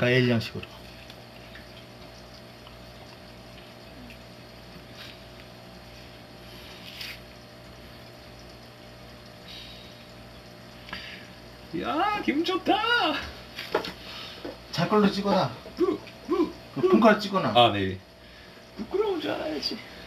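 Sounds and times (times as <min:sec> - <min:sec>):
faint trickling water: 0:00.0 - 0:20.0
water pump humming: 0:00.0 - 0:20.0.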